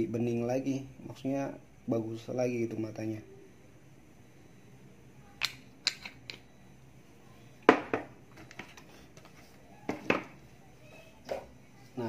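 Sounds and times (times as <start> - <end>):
small items knocking on workbench: 7.7 - 10.4.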